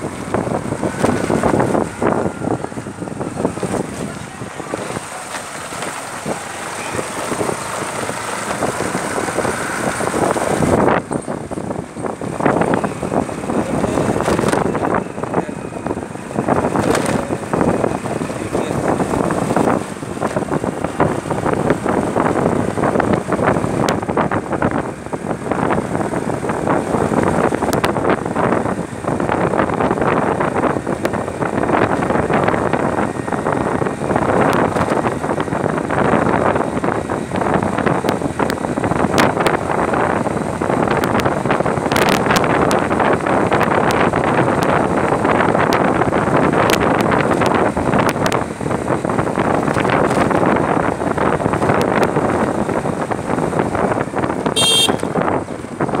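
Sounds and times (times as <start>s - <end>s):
motorcycle engine running: 0.0s - 56.0s
wind rushing over microphone: 0.0s - 56.0s.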